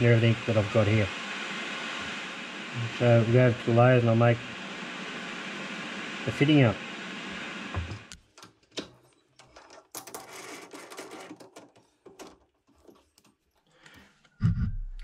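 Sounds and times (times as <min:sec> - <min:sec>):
steady hiss: 0:00.0 - 0:08.2.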